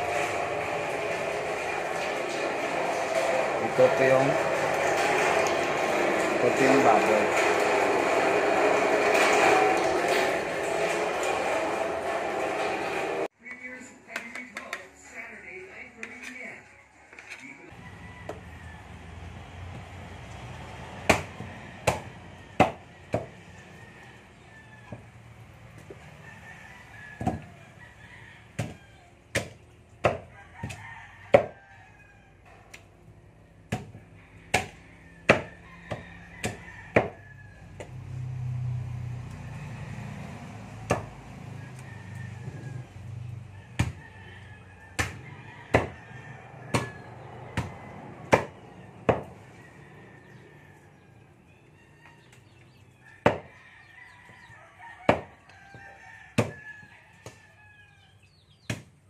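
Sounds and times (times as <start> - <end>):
cleaver chopping meat: 21.0 - 23.4, 27.2 - 27.5, 28.6 - 31.6, 33.7 - 37.2, 40.9 - 41.1, 43.8 - 44.0, 45.0 - 46.0, 46.7 - 49.3, 53.2 - 53.6, 55.1 - 56.6, 58.6 - 59.0.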